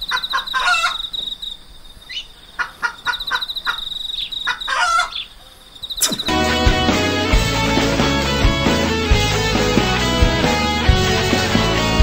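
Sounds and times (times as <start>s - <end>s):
insect trilling: 0.0s - 6.4s
bird chirping: 0.0s - 6.9s.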